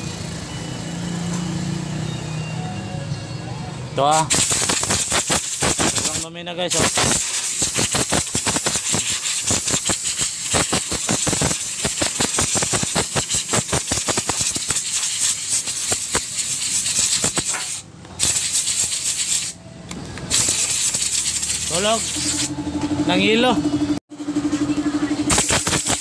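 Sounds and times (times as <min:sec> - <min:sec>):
compressed air hissing from blow gun: 0:04.2 - 0:19.6, 0:20.3 - 0:22.5, 0:25.3 - 0:26.0
fast crackling rattle: 0:04.3 - 0:19.6, 0:20.3 - 0:22.5, 0:25.3 - 0:26.0.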